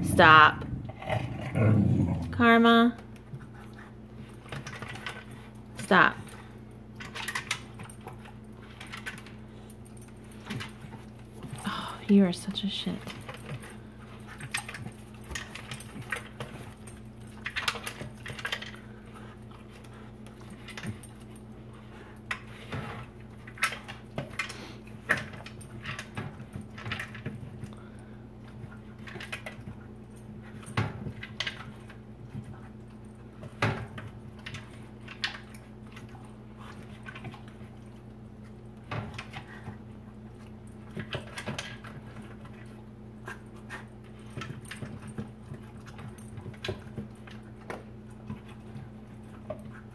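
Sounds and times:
steady low hum: 0.0s - 49.9s
dog eating from plastic bowl: 13.0s - 49.9s.

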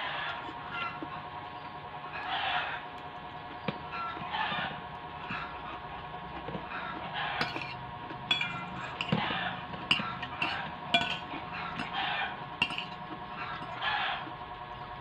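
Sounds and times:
fork and spoon clinking on bowl: 7.4s - 9.3s, 9.9s - 12.0s, 12.6s - 13.8s.

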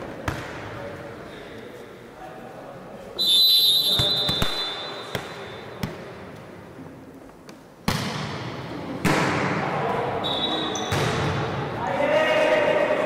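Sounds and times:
volleyball thumping on gym floor: 0.2s - 0.7s, 3.9s - 6.2s, 7.8s - 9.6s, 10.8s - 11.6s
referee's whistle: 3.2s - 5.2s, 10.2s - 10.9s.

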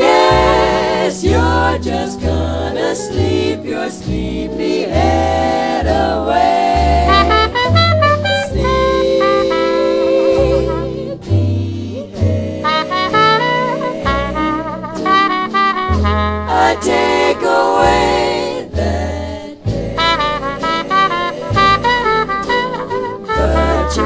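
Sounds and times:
jazz music with singing and horns: 0.0s - 24.0s.

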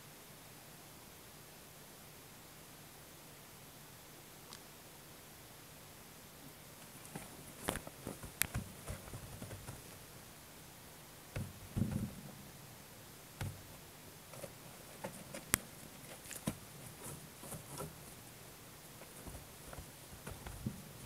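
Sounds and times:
soft thumps and rustles in litter: 7.1s - 10.0s, 11.4s - 12.3s, 19.0s - 21.0s.

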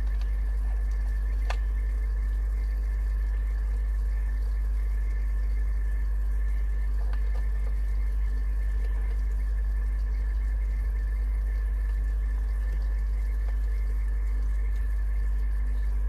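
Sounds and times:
faint high whine: 0.0s - 16.0s
low machine hum: 0.0s - 16.0s.

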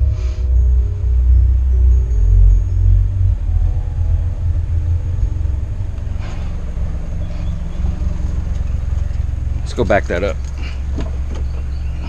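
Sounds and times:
subwoofer bass music: 0.0s - 12.0s.

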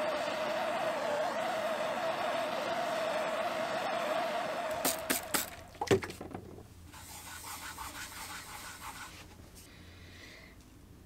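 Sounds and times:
palm rubbing on plywood: 7.0s - 9.4s.

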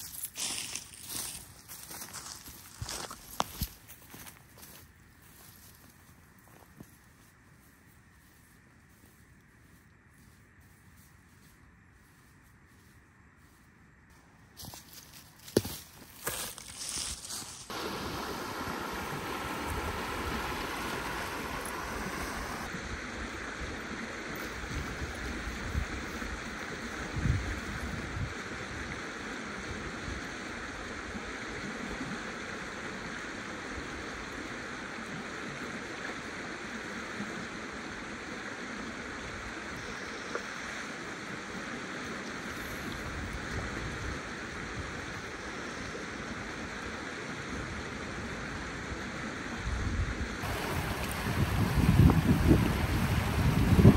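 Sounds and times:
river water rushing: 17.7s - 23.0s, 50.4s - 53.9s.

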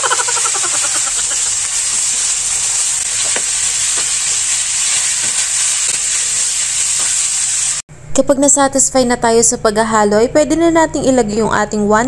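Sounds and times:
chicken sizzling in hot oil: 0.0s - 7.8s.

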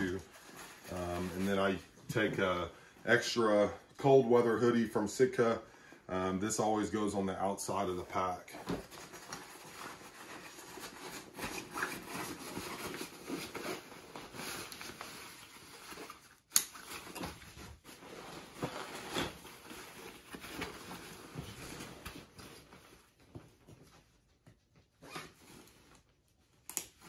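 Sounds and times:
nylon backpack fabric rustling: 0.0s - 2.4s, 17.0s - 23.6s.

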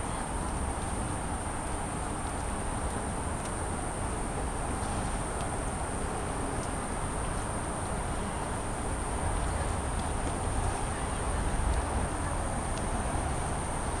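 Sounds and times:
distant traffic hum: 0.0s - 14.0s.

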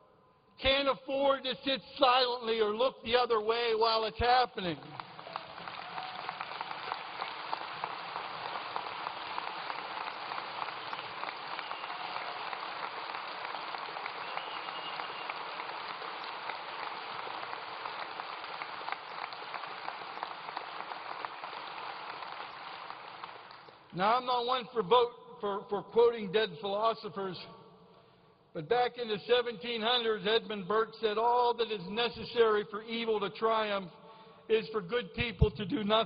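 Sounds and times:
audience applauding: 4.8s - 23.9s.

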